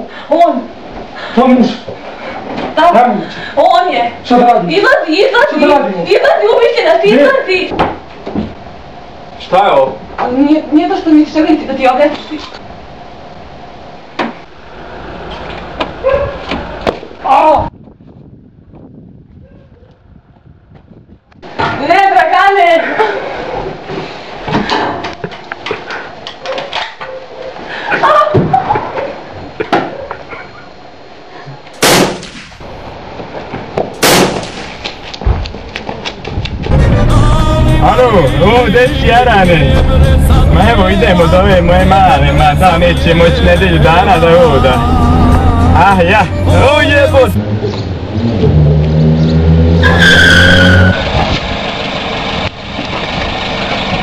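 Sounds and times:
pistol shots: 31.8s - 32.6s, 34.0s - 34.8s
tyres screeching: 36.7s - 51.3s
car engine humming: 36.7s - 54.0s
rough noisy engine: 36.7s - 54.0s.

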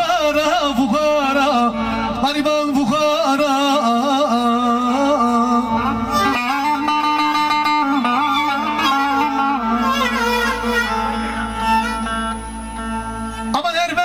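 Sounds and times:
man singing: 0.0s - 9.8s
plucked string instrument: 0.0s - 14.0s.

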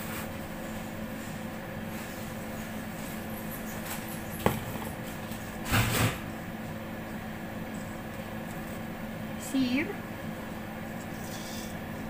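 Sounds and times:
kitchen machinery hum: 0.0s - 12.0s.

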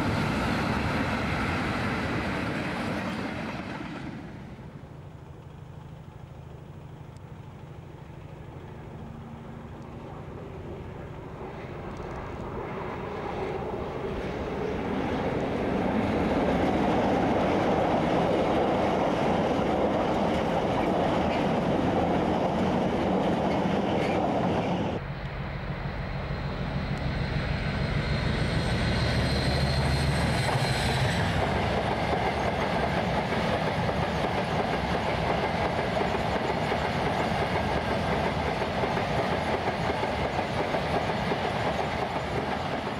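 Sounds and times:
diesel locomotive: 0.0s - 42.9s
low engine note: 4.4s - 12.6s, 24.8s - 31.4s
thin high whine: 25.0s - 31.4s.

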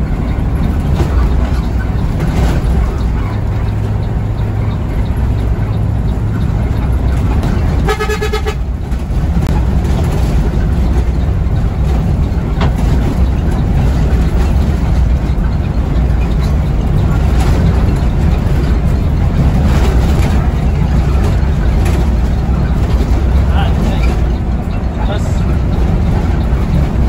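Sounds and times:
bus engine and road rumble: 0.0s - 27.0s
bus horn blast: 7.7s - 8.9s.

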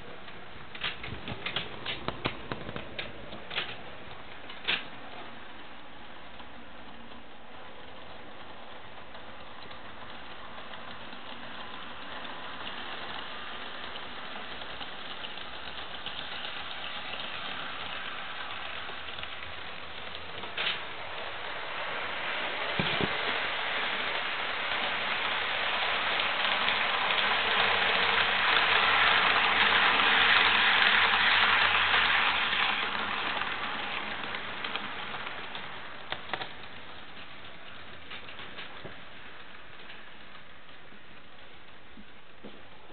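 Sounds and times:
model train wheels on rail: 0.0s - 42.9s.

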